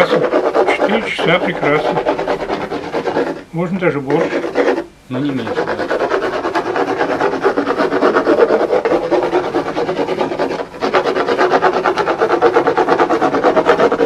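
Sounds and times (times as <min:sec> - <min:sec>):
hand rubbing a hard surface: 0:00.0 - 0:14.0.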